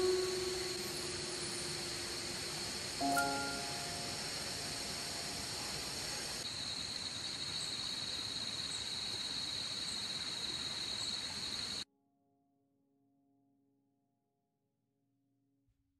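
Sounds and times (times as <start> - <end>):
insects chirring: 0.0 - 11.8
outdoor hiss: 0.0 - 11.8.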